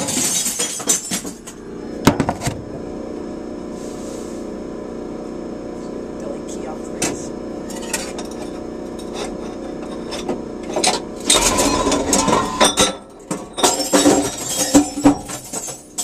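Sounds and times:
glass bottle clattering and clinking: 0:00.0 - 0:01.5, 0:07.7 - 0:16.0
machine hum: 0:00.0 - 0:16.0.

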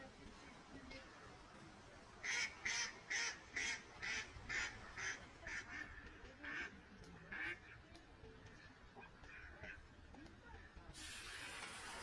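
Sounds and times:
duck quacking: 0:02.2 - 0:06.7.

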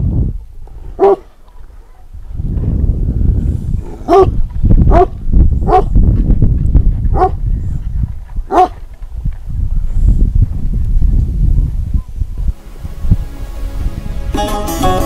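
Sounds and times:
steady low rumble: 0:00.0 - 0:14.4
dog barking: 0:01.0 - 0:02.1, 0:03.8 - 0:05.9, 0:07.1 - 0:07.4, 0:08.5 - 0:08.8.

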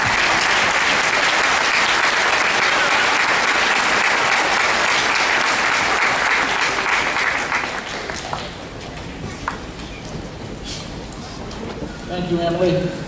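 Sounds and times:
audience applauding: 0:00.0 - 0:09.8.

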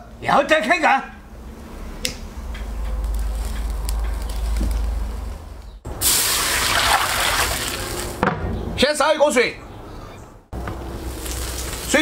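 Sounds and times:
water poured into metal wok: 0:06.0 - 0:08.1.

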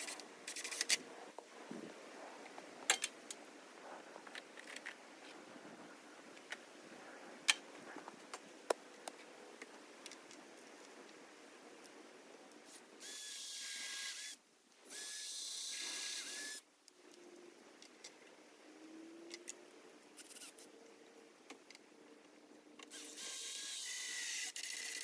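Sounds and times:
power drill whining: 0:22.9 - 0:25.0.

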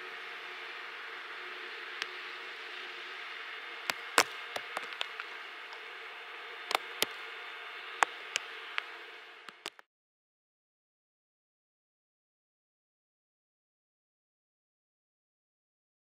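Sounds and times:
outdoor background hiss: 0:00.0 - 0:09.8
faint hum: 0:00.0 - 0:09.9
sharp ticks and clicks: 0:03.8 - 0:05.9, 0:06.6 - 0:07.3, 0:08.0 - 0:09.8.

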